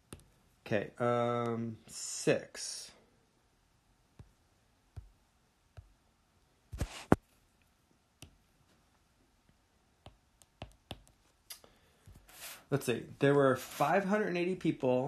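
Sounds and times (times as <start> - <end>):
paper rustling: 6.8 - 7.2
pen strokes on paper: 6.8 - 7.2, 12.1 - 12.7, 13.5 - 14.0
clicks and taps on desk: 10.0 - 11.2.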